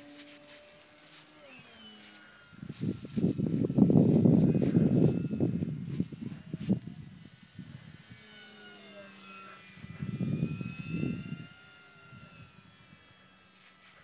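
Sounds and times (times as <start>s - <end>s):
electric motor and propeller whining: 0.0s - 14.0s
low rumble on microphone: 2.6s - 8.0s.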